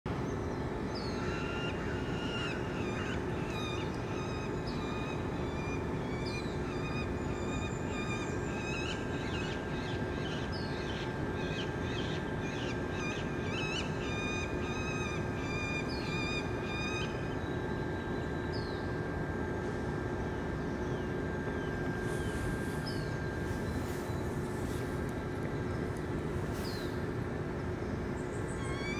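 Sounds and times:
steady background hum: 0.1 - 28.9
birds calling: 20.4 - 28.9.

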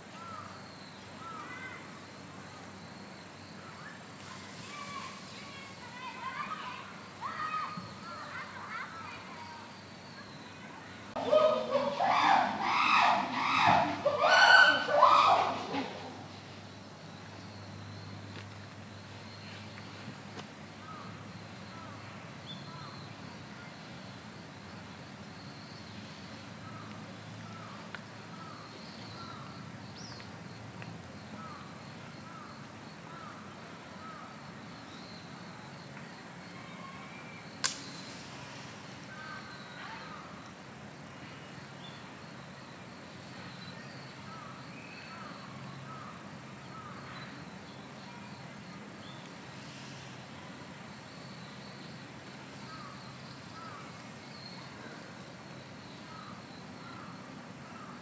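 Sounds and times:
insects trilling: 0.0 - 58.0
sharp snap: 37.6 - 38.2.

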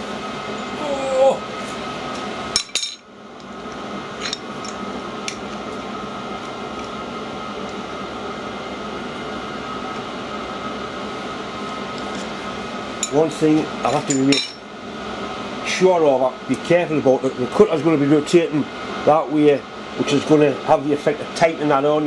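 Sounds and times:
workshop hum: 0.0 - 22.0
spanner clanking against metal: 13.9 - 14.6.

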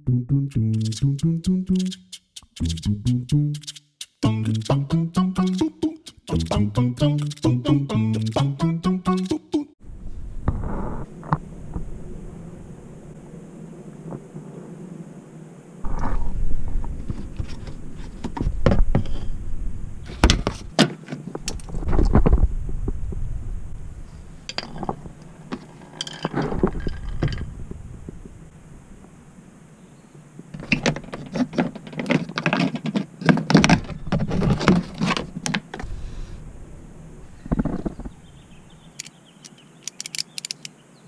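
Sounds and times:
metal tools clinking and knocking: 24.5 - 27.4.

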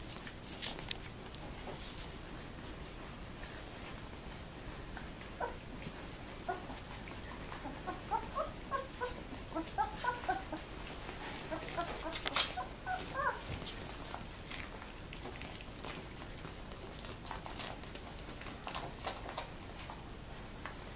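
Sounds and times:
puppies squeaking and whimpering: 6.4 - 14.1.

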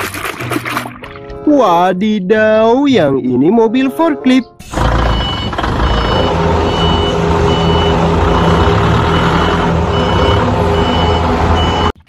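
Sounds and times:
forklift warning beeper: 4.5 - 12.0
forklift engine running: 4.6 - 12.0.

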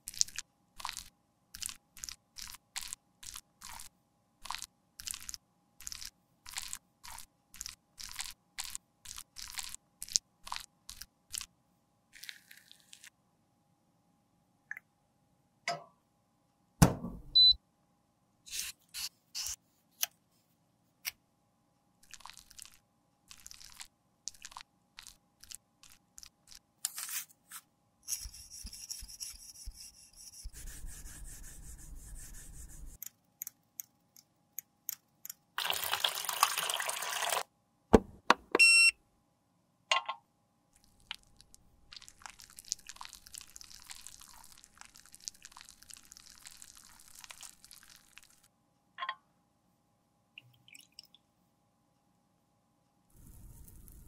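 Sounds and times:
faint sizzle of melting product: 12.1 - 13.2, 40.8 - 48.5, 53.1 - 54.0
electronic beeps: 17.4 - 17.6.

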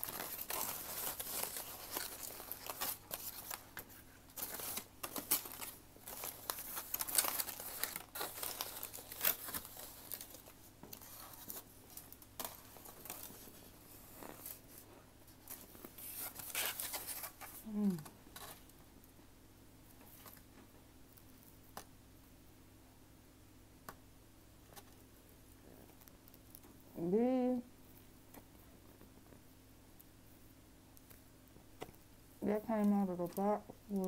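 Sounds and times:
foil crinkling: 0.0 - 18.7.

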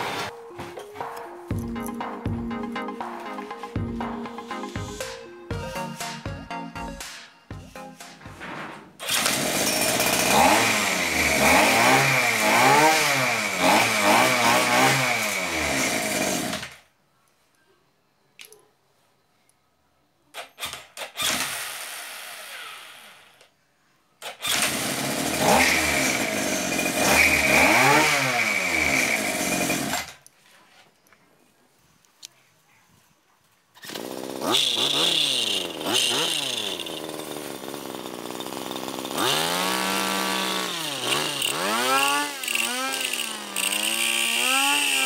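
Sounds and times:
small engine revving: 9.0 - 16.8, 20.6 - 23.4, 24.2 - 30.2, 33.8 - 45.0.

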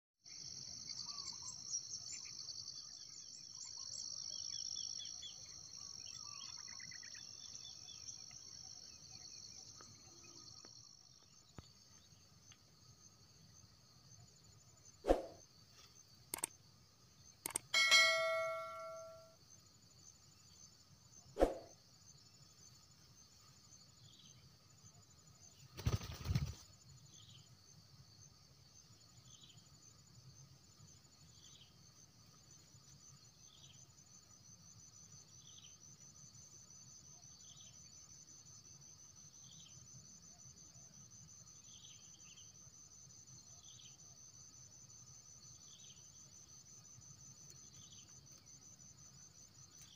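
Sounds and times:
crickets chirring: 0.3 - 49.9
sharp clicks: 16.3 - 16.6, 17.4 - 17.7
brief metallic ring: 17.8 - 19.3
dove wings flapping: 25.7 - 26.7.

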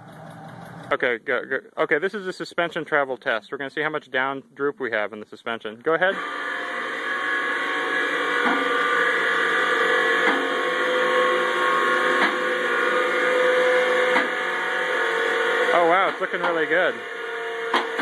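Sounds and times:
hydraulic pump motor humming: 6.1 - 18.0.

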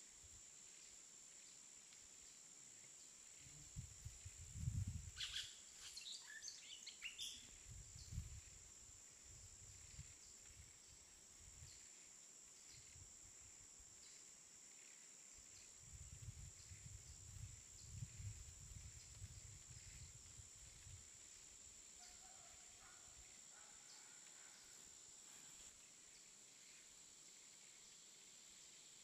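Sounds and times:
wind gusting against microphone: 3.8 - 5.2, 15.8 - 21.0
faint high bird chirps: 5.2 - 8.3.

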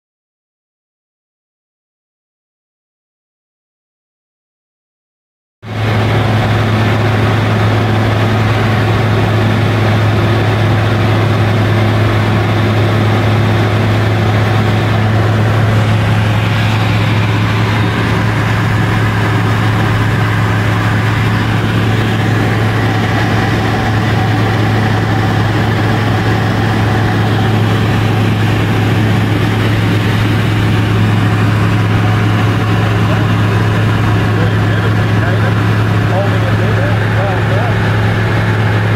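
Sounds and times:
aircraft engine and propeller droning: 5.7 - 38.9.

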